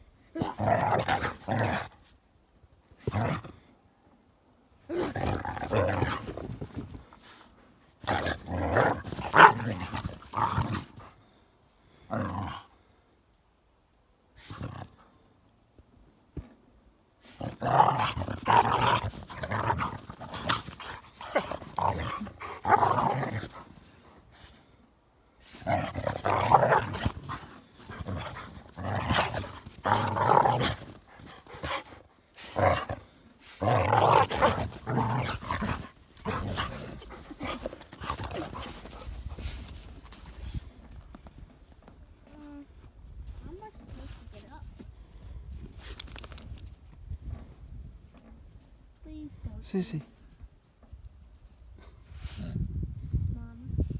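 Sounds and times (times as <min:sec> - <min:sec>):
dogs growling: 0:17.3 - 0:24.2, 0:25.5 - 0:39.8.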